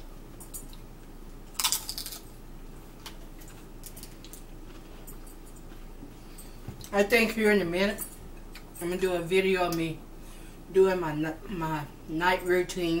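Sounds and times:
potato chip crunching: 1.5 - 2.3.

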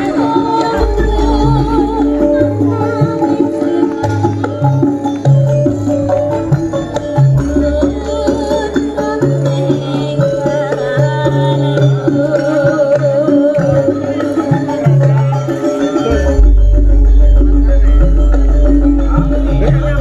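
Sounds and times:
hand drum percussion: 0.0 - 20.0
wavering melody: 0.0 - 20.0
deep sustained bass line: 0.8 - 2.8.

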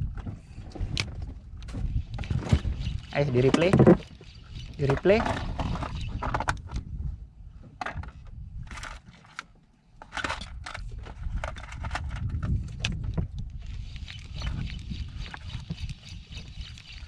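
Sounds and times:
fishing reel clicks and rattles: 2.0 - 6.7, 13.6 - 17.0.

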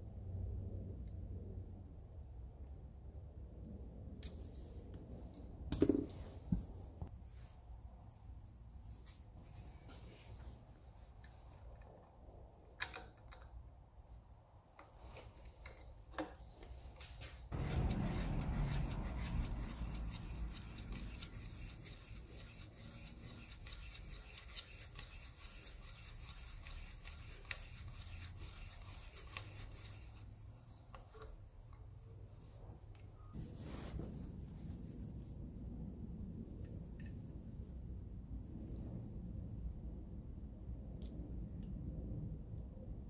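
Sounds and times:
metal scraping brass: 17.5 - 30.5.

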